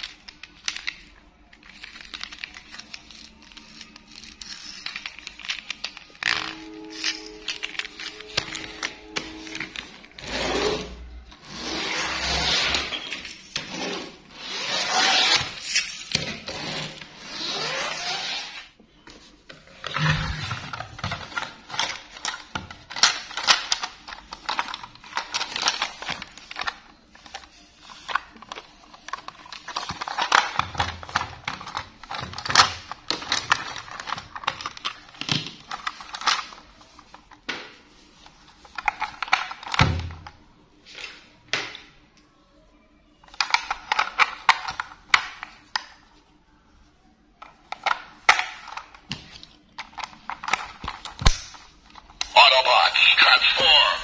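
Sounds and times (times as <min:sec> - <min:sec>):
toy trains scraping along table: 0:10.2 - 0:12.9.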